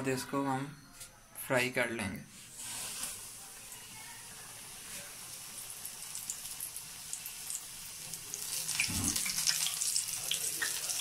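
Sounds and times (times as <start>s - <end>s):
chicken frying in hot oil: 2.5s - 11.0s.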